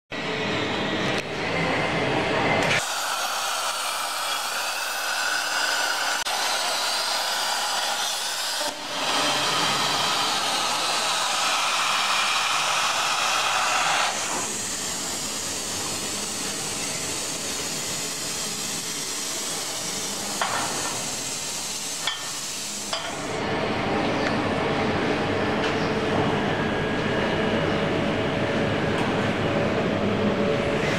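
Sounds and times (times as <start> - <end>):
plasma cutter hissing: 2.6 - 23.4.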